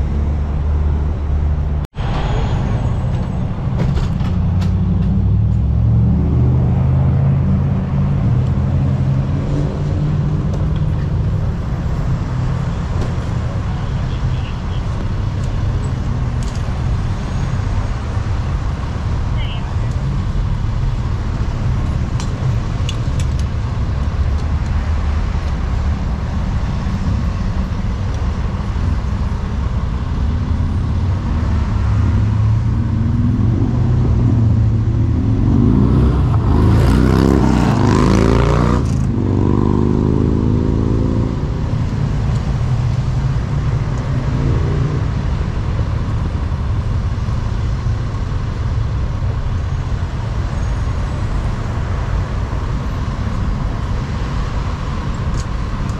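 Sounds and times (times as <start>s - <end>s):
vehicle passing by: 0.0s - 13.5s, 30.2s - 46.6s
traffic rumble: 0.0s - 55.9s.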